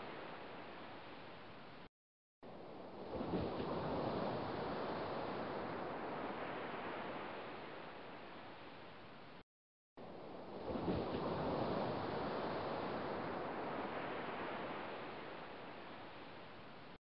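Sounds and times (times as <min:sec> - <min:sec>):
small waves washing on shore: 0:00.0 - 0:01.9, 0:02.5 - 0:09.4, 0:10.0 - 0:17.0
wind on microphone: 0:02.8 - 0:08.4, 0:10.3 - 0:16.9.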